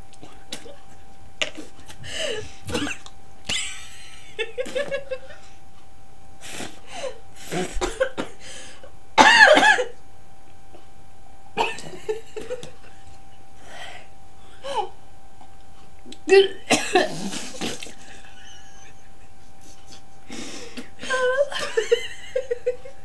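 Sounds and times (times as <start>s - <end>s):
people coughing and spluttering: 0.2s - 5.4s, 7.0s - 8.4s, 9.2s - 10.0s, 11.6s - 13.0s, 16.3s - 19.0s.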